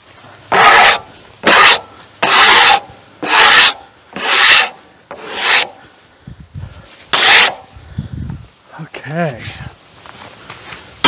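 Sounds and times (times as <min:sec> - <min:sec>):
rasping scraping on wooden boards: 0:00.5 - 0:05.8, 0:07.1 - 0:07.7.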